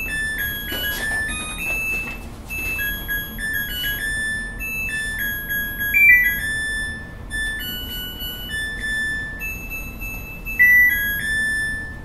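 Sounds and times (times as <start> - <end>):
washing machine beep melody: 0.0 - 12.0.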